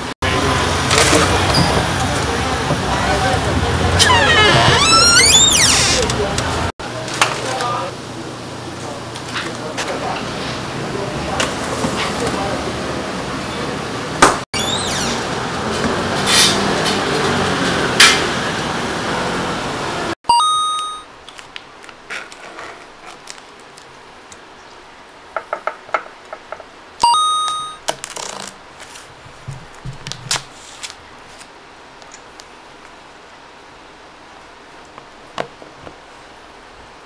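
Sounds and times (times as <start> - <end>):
bell-like ding: 20.3 - 21.1, 27.0 - 27.8.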